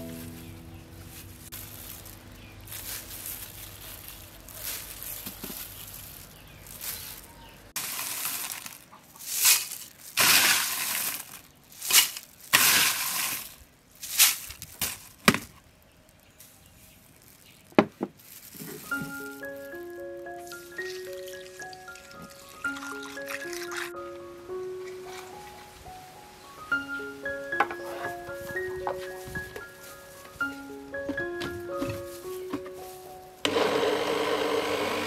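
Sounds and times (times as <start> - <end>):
crushed ice rattling into blender jar: 4.6 - 15.4.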